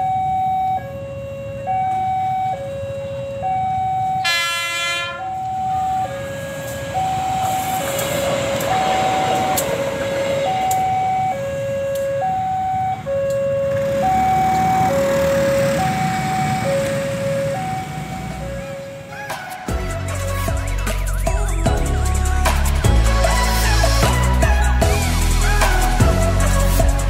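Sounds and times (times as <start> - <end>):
level crossing two-tone alarm: 0.0 - 19.2
passing train rumble: 3.0 - 27.0
train horn blast: 4.2 - 6.9.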